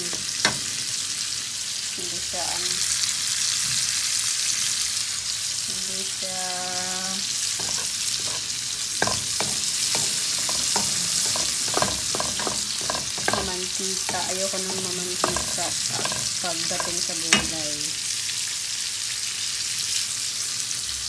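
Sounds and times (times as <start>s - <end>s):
spatula knocking and scraping pan: 0.0s - 0.9s, 7.6s - 18.0s
vegetables sizzling in frying pan: 0.0s - 21.0s.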